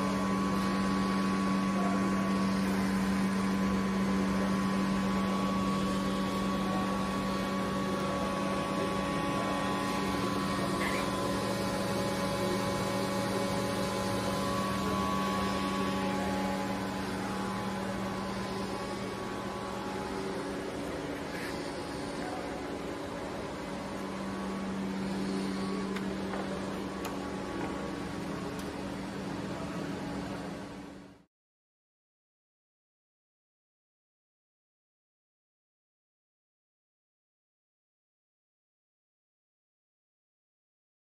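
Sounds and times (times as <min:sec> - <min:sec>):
electrical cabinet hum: 0:00.0 - 0:31.3.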